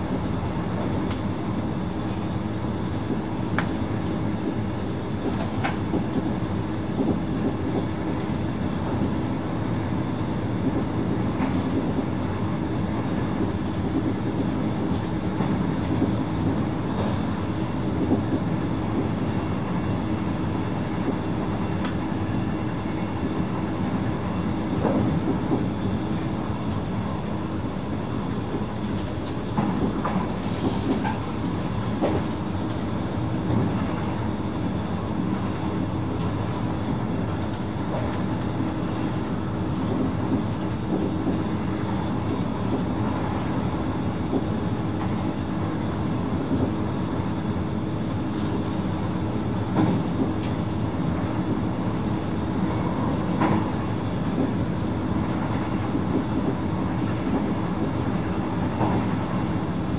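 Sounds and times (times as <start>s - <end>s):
constant hum: 0.0s - 59.9s
train wheels rolling on rails: 3.6s - 12.2s, 24.7s - 47.3s, 52.5s - 59.9s.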